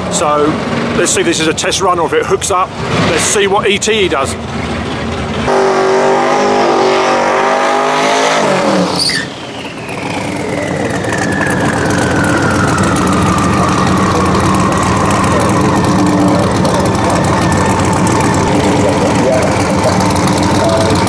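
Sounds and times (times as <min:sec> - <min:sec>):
car engine revving high: 0:05.4 - 0:21.0
tyres spinning: 0:08.9 - 0:21.0
whine falling in pitch: 0:09.6 - 0:21.0.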